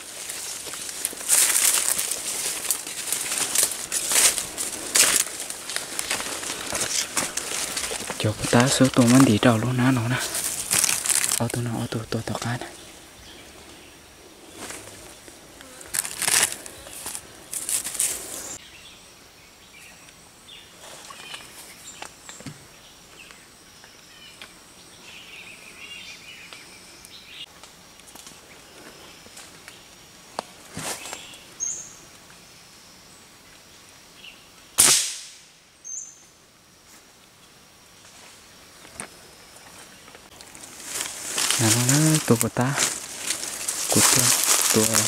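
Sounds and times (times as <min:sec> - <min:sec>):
plastic bag rustling and crinkling: 0:00.0 - 0:11.8, 0:14.6 - 0:18.6, 0:39.8 - 0:45.0
gunshot: 0:34.8 - 0:35.5.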